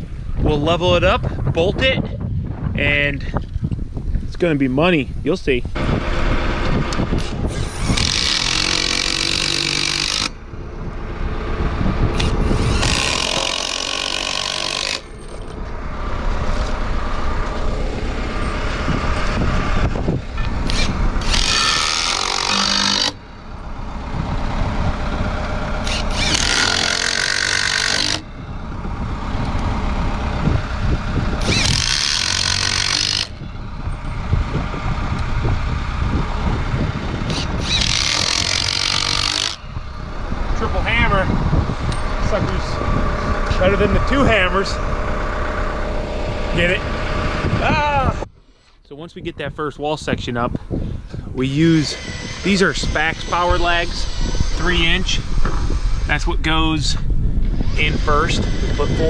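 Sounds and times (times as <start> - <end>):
impact driver hammering screws: 7.2 - 10.4, 12.2 - 15.6, 20.6 - 23.2, 25.8 - 28.3, 31.4 - 33.4, 37.3 - 39.6.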